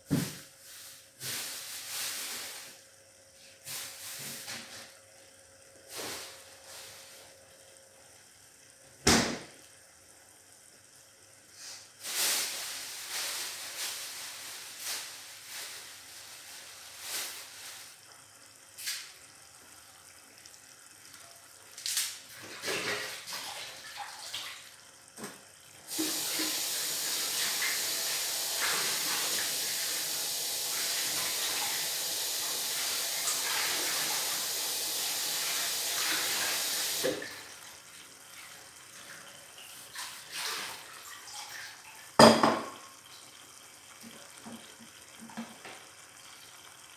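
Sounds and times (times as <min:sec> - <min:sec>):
kitchen tap running: 0:12.0 - 0:46.9.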